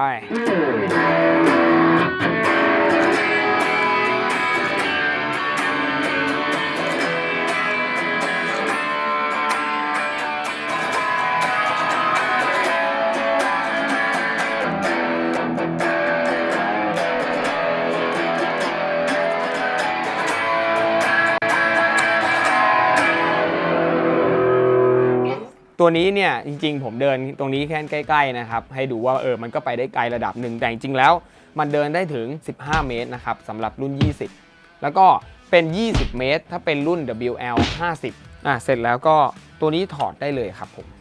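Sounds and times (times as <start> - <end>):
distorted electric guitar: 0.0 - 25.6.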